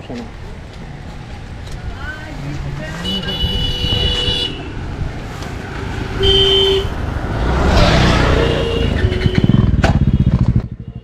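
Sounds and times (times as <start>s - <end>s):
road noise: 0.0s - 11.0s
motorcycle engine running: 0.4s - 11.0s
vehicle horn toot: 3.0s - 4.7s, 6.2s - 7.0s, 8.1s - 11.0s.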